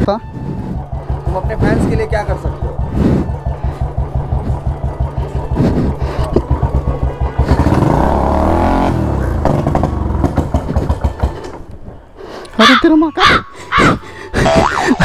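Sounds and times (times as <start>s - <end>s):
motorcycle engine revving: 0.4s - 11.7s.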